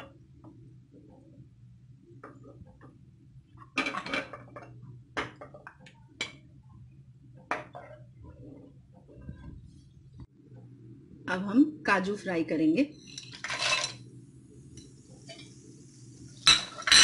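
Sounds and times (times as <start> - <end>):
steady low hum: 4.8 - 17.0.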